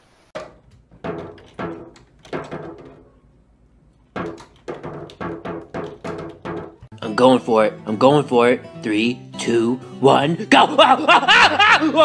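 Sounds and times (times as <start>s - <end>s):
toy drum hits: 0.4s - 3.0s, 4.2s - 6.8s.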